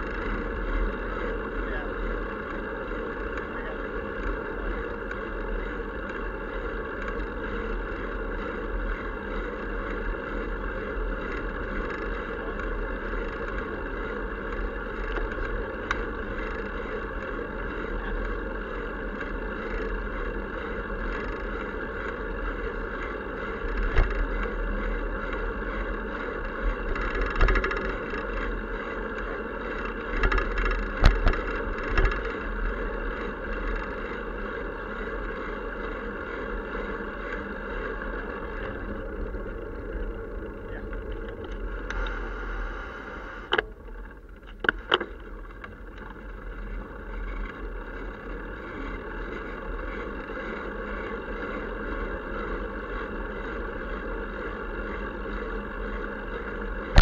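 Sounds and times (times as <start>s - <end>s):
bicycle tyres rolling on asphalt: 0.0s - 57.0s
bicycle thumping over bumps: 30.2s - 32.3s.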